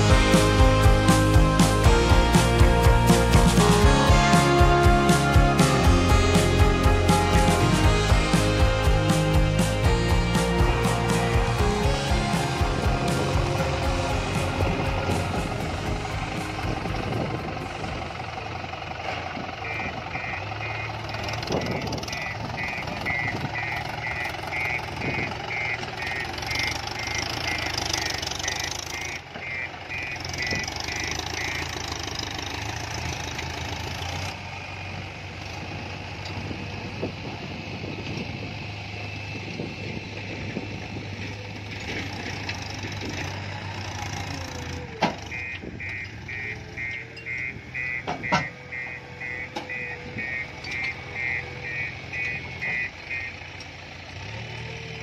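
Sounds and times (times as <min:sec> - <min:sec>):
tractor diesel engine running: 0:00.0 - 0:55.0
reversing alarm beeping: 0:19.6 - 0:31.8, 0:45.2 - 0:53.8.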